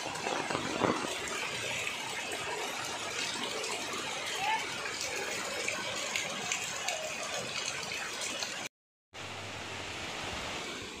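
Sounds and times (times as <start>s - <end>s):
water spout pouring: 0.0s - 8.7s
rain hissing on trees: 0.0s - 11.0s
rain splashing into runoff: 0.0s - 11.0s.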